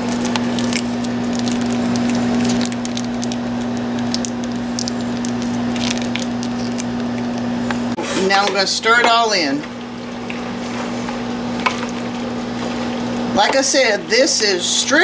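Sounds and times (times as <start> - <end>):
foil pouch crinkling: 0.0 - 7.5
steady low hum: 0.0 - 15.0.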